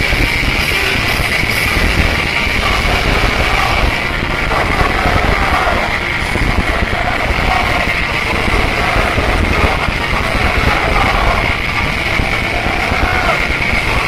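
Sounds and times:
distorted live punk rock band: 0:00.0 - 0:14.0.

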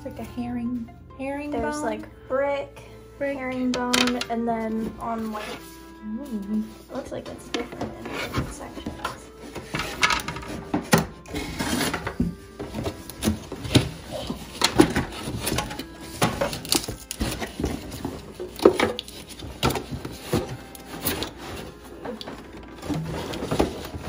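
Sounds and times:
cardboard packaging rustling: 0:07.6 - 0:24.0
plastic pieces knocking and clicking: 0:09.7 - 0:11.0.

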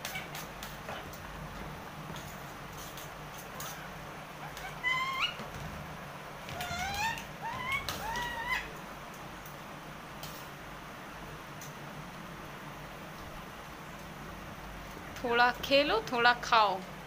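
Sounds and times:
parrot rising calls: 0:03.6 - 0:05.6, 0:06.4 - 0:08.8.

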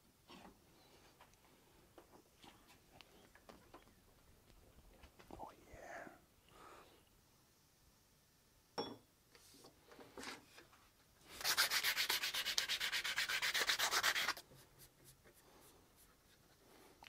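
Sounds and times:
faint handling noise: 0:00.2 - 0:05.6
sanding wood scraping strokes: 0:11.3 - 0:16.4.

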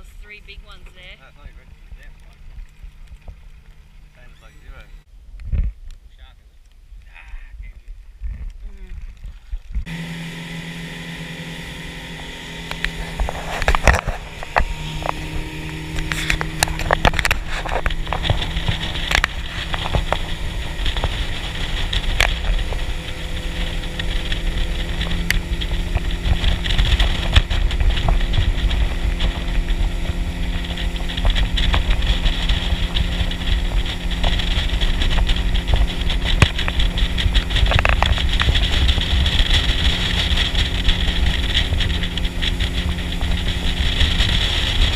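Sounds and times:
boat motor running: 0:00.0 - 0:05.1, 0:08.2 - 0:44.9
hiss of water and wind: 0:05.3 - 0:44.9
knocks and clatter: 0:12.7 - 0:44.9.

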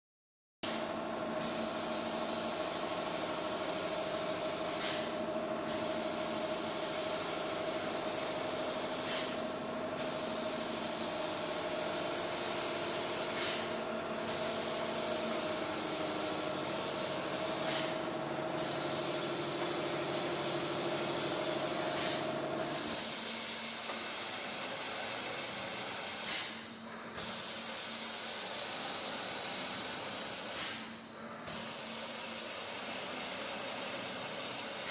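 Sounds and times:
machine high hiss: 0:00.7 - 0:34.9
machine hum: 0:09.4 - 0:23.0.

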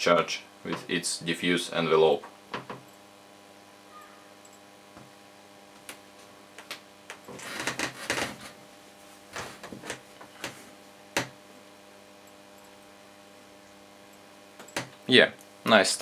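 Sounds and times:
plasma torch buzzing hum: 0:09.3 - 0:16.0.

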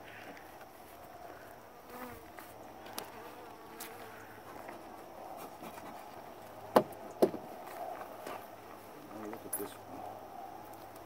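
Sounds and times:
sharp knocks: 0:06.7 - 0:07.4.

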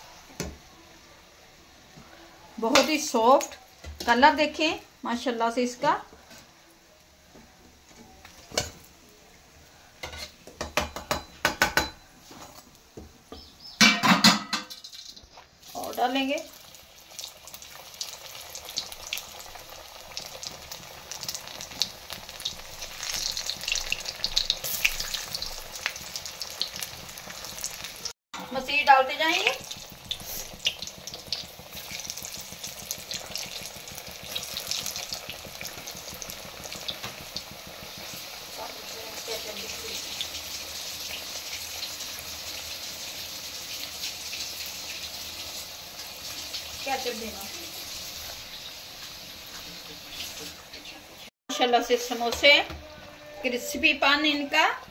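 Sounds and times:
deep-frying fat sizzling: 0:00.0 - 0:54.9
utensil knocking on plate and pan: 0:10.1 - 0:12.0, 0:13.8 - 0:14.8
crackles and spits of oil: 0:12.2 - 0:51.3.

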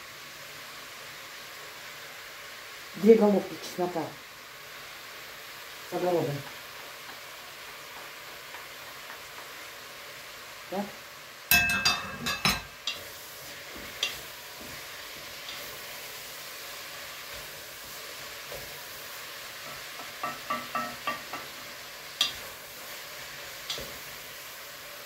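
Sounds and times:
food sizzling in a frying pan: 0:00.0 - 0:25.0
utensil clinking against cookware: 0:11.5 - 0:13.1, 0:19.6 - 0:21.6.

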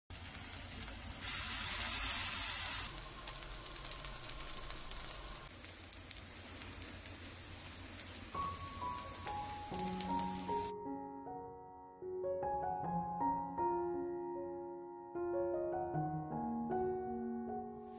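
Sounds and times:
batter sizzling in oil: 0:00.1 - 0:10.7.

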